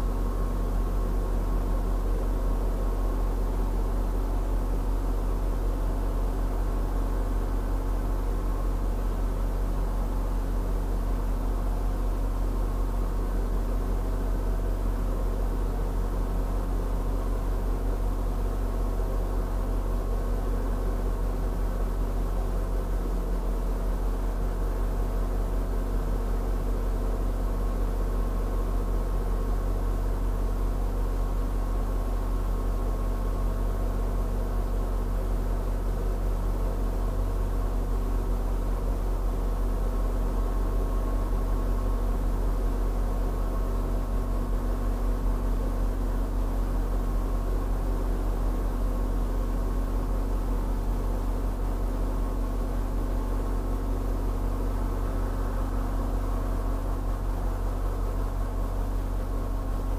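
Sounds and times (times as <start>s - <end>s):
engine idling hum: 0.0s - 59.9s.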